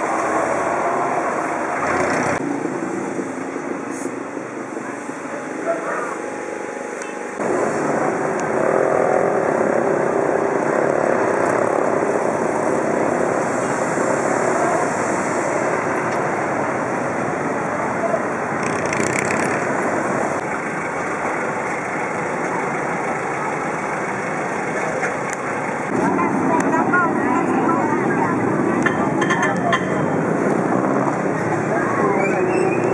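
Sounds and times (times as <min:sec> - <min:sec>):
traffic engine noise: 0:00.0 - 0:32.9
crowd voices: 0:20.6 - 0:32.9.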